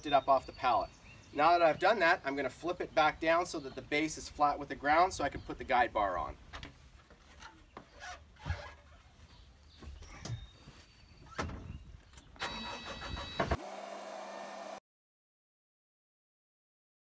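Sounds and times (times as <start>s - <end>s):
loader engine cranking and starting: 12.3s - 14.8s.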